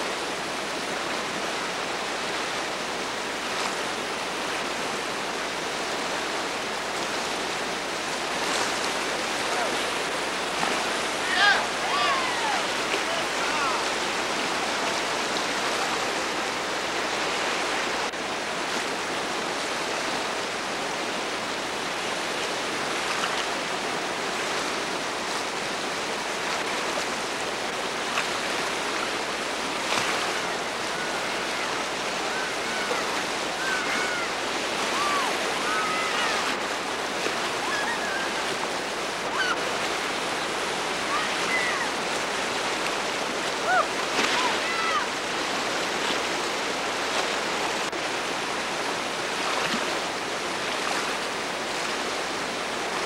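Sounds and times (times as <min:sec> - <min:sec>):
river rapid water crashing over rocks: 0:00.0 - 0:53.0
faint voices calling out: 0:11.1 - 0:14.1, 0:30.4 - 0:36.6, 0:40.9 - 0:42.0, 0:43.6 - 0:45.2.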